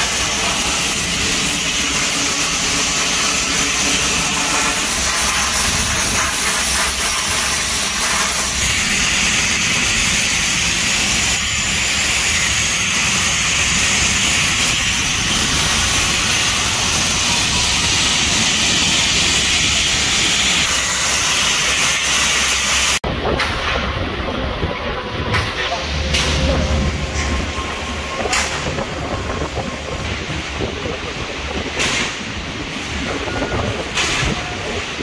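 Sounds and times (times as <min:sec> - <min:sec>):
high-pressure blasting hiss: 0:00.0 - 0:23.0.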